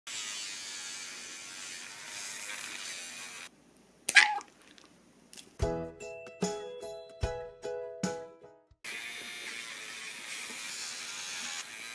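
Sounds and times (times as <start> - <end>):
pet nail grinder buzzing: 0.1 - 3.5, 8.8 - 11.9
dog yelping: 4.1 - 4.5.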